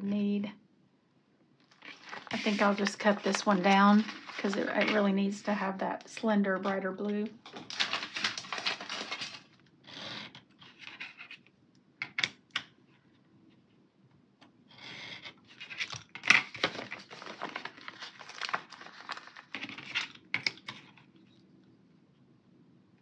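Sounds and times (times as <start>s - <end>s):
paper rustling: 1.7s - 9.6s, 15.1s - 21.1s.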